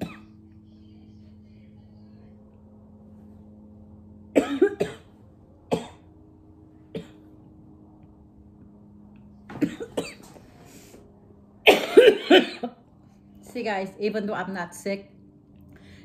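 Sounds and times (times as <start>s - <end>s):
woman coughing: 0.0s - 0.3s, 4.3s - 5.1s, 5.7s - 6.1s, 9.5s - 10.3s, 11.7s - 12.8s.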